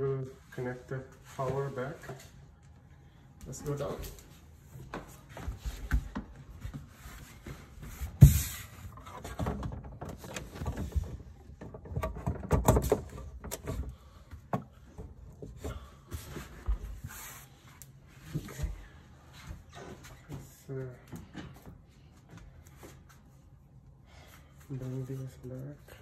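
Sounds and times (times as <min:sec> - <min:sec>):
handling knocks clicks and rustles: 0:04.8 - 0:17.0.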